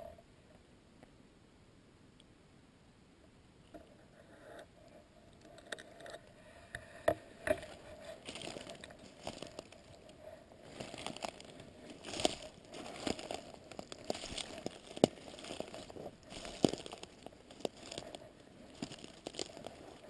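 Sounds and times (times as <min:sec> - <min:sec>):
twigs snapping: 0:07.5 - 0:10.1, 0:10.7 - 0:20.0
footsteps through dry leaves: 0:07.6 - 0:20.0.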